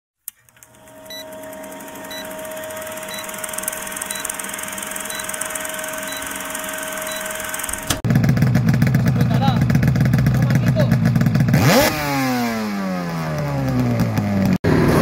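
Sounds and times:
film projector clatter: 0.4s - 8.0s
short beeps: 1.0s - 1.4s, 2.1s - 7.7s.

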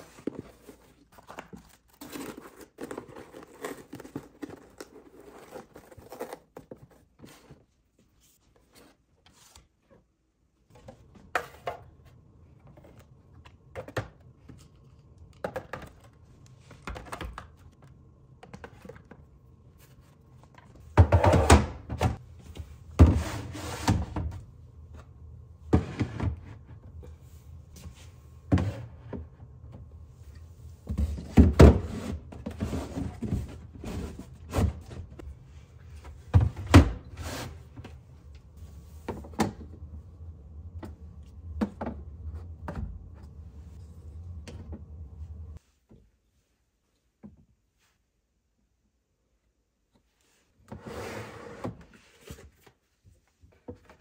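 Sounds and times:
plastic bottles and bins handled: 0.0s - 10.1s, 10.7s - 39.9s, 51.6s - 54.0s
low steady hum: 10.6s - 45.7s.

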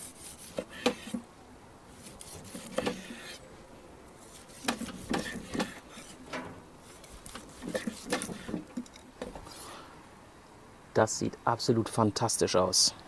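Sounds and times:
knife scraping through steak: 0.0s - 1.2s, 2.0s - 3.4s, 4.2s - 6.2s, 6.8s - 8.7s.

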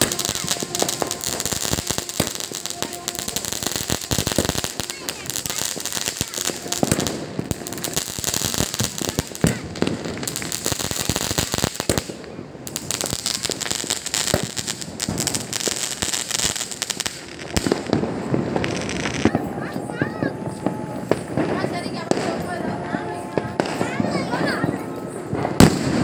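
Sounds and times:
steady high hiss: 0.0s - 19.2s
firecrackers popping and banging: 0.0s - 26.0s.

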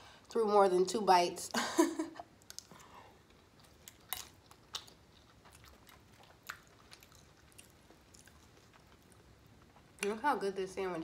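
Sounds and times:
chewing food: 2.4s - 10.1s.

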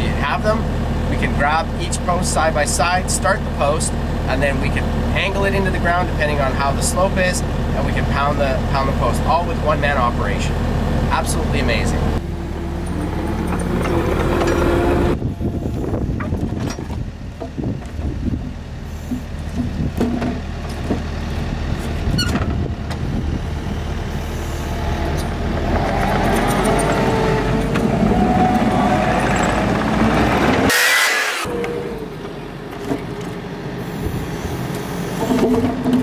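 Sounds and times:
diesel engine running: 0.0s - 36.0s
hydraulic whine: 10.2s - 36.0s
wooden posts clunking: 19.1s - 21.2s.

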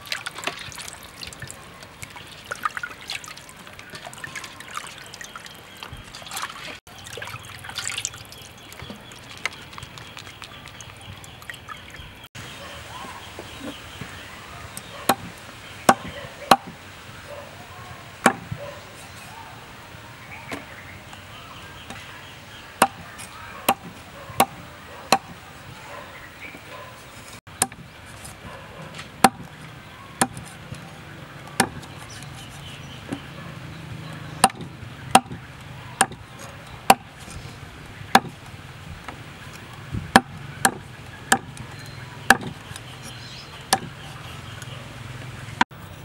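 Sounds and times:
cleaver chopping on wooden block: 15.1s - 16.8s, 18.2s - 18.6s, 22.8s - 23.0s, 23.7s - 25.4s, 27.6s - 27.8s, 29.2s - 29.5s, 30.2s - 30.5s, 31.6s - 31.9s, 34.4s - 35.4s, 36.0s - 36.2s, 36.9s - 37.1s, 38.1s - 38.4s, 40.1s - 41.6s, 42.3s - 42.6s, 43.7s - 44.0s.

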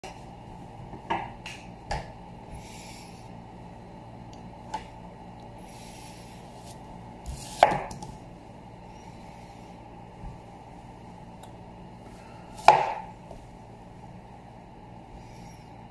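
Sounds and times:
knife slicing beetroot: 6.6s - 8.0s.

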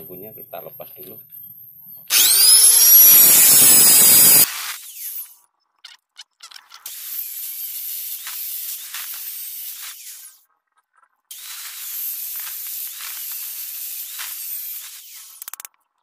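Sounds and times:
angle grinder cutting steel: 2.1s - 5.4s, 6.9s - 10.4s, 11.3s - 15.7s.

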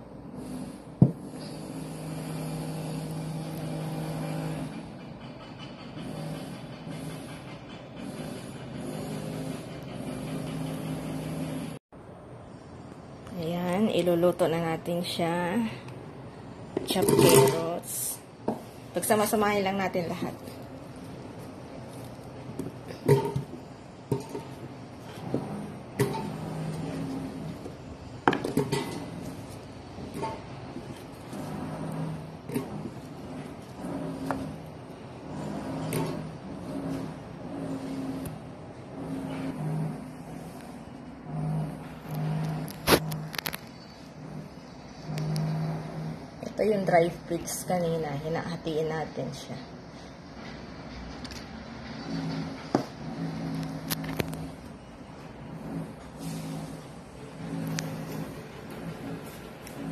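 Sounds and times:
low motor hum: 18.2s - 47.4s, 51.3s - 59.9s.

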